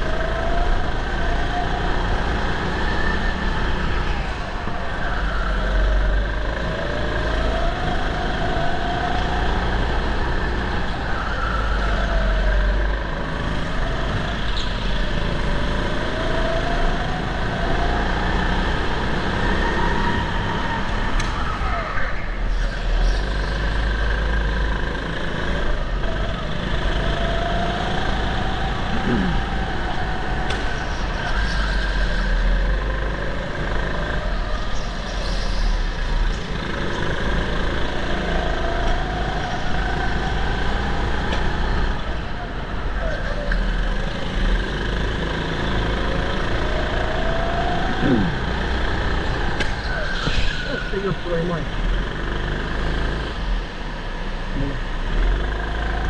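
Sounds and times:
go-kart engine revving: 0:00.0 - 0:56.0.

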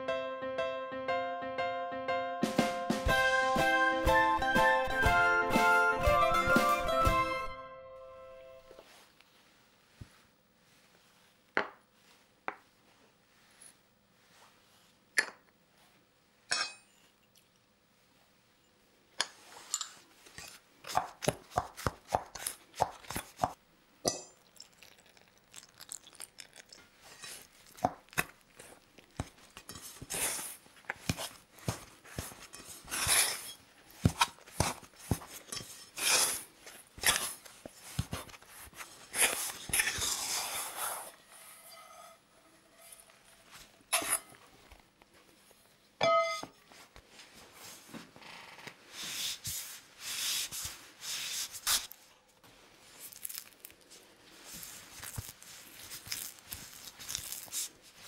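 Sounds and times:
scraper scraping dough: 0:29.7 - 0:44.3
metal bowl ringing: 0:46.0 - 0:46.6.

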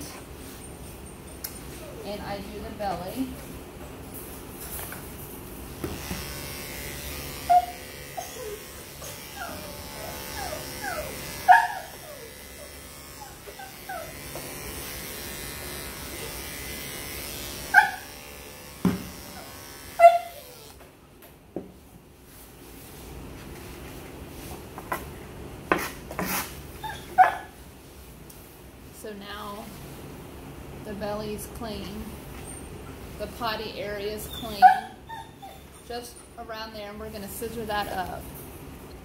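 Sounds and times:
electric clippers buzzing: 0:04.9 - 0:20.9
dog yipping and whimpering: 0:07.5 - 0:14.2, 0:19.4 - 0:20.7, 0:26.8 - 0:27.5, 0:34.2 - 0:35.8.

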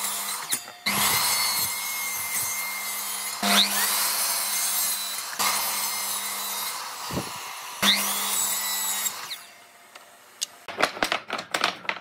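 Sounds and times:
miter saw cutting wood: 0:00.0 - 0:10.7.

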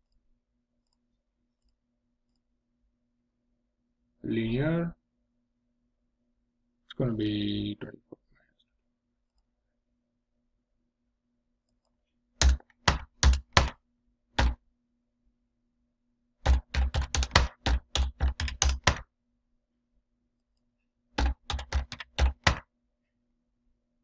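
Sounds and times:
typing on computer keyboard: 0:12.4 - 0:13.8, 0:16.4 - 0:19.0, 0:21.2 - 0:22.6.

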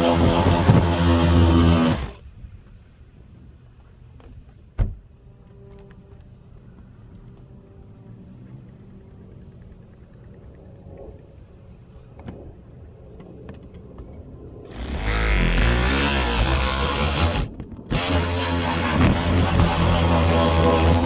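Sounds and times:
reciprocating saw cutting: 0:00.0 - 0:02.2, 0:14.7 - 0:21.0
faint clicks: 0:05.8 - 0:12.4.

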